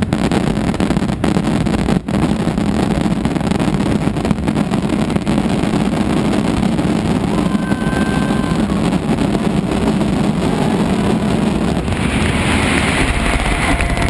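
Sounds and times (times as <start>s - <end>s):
firecracker barrage: 0.0s - 14.0s
crowd cheering and clapping: 7.3s - 8.9s.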